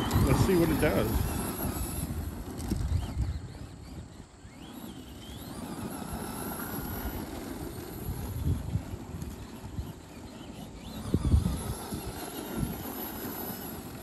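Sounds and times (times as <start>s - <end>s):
electric motor whine: 0.0s - 14.0s.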